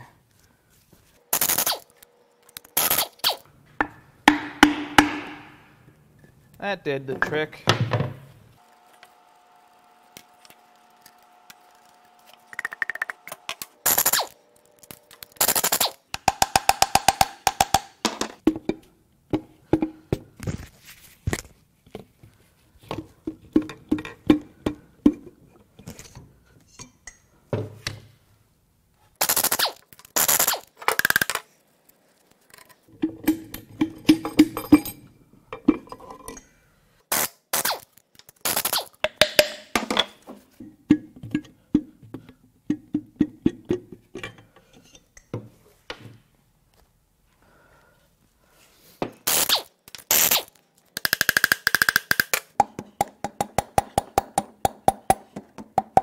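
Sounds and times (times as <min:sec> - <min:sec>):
hammer striking metal: 0:03.8 - 0:05.7.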